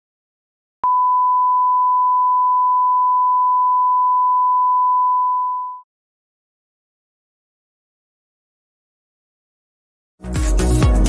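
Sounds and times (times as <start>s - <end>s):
pure test tone beep: 0.8s - 5.8s.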